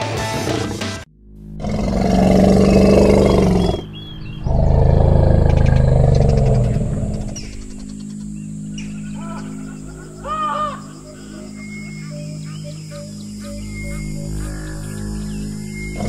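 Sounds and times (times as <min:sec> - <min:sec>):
background music: 0:00.0 - 0:05.4
animal roaring: 0:01.6 - 0:16.0.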